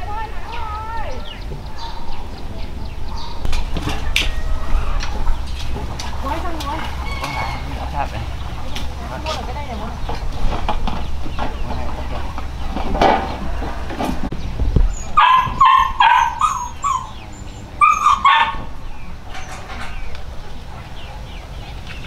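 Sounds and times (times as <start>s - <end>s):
dog yipping: 1.7s - 2.2s, 3.1s - 3.5s, 15.0s - 17.2s, 17.8s - 18.7s.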